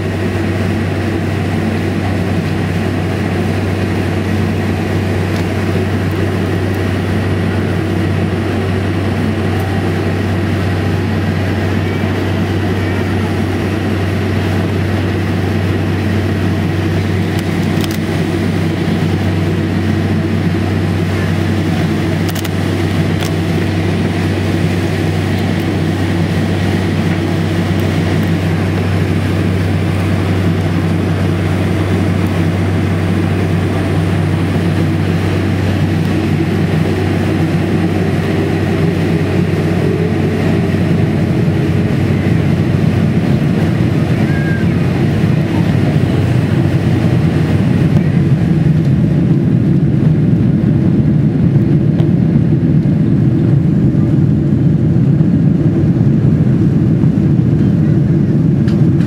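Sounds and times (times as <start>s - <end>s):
airplane cabin engine drone: 0.0s - 59.0s.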